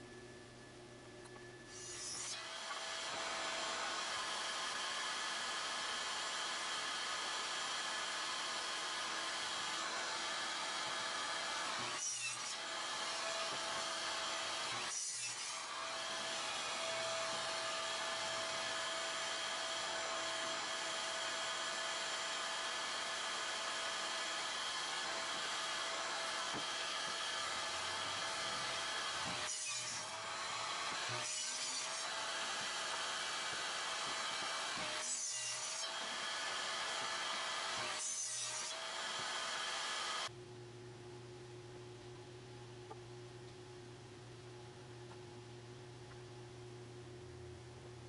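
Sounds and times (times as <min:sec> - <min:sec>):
shop vacuum running: 0:01.0 - 0:14.9, 0:15.6 - 0:31.3, 0:32.0 - 0:35.0, 0:35.6 - 0:40.4.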